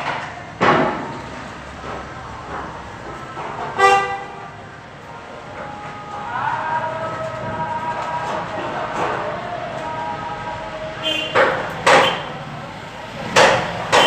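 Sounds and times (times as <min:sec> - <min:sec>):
street background noise: 0:00.0 - 0:14.0
vehicle horn toot: 0:03.8 - 0:04.5, 0:11.0 - 0:12.3
sharp knock: 0:11.4 - 0:12.3.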